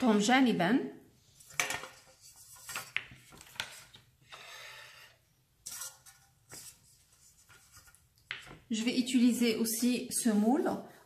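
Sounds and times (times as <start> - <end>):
metal pan scraping: 5.6 - 6.4.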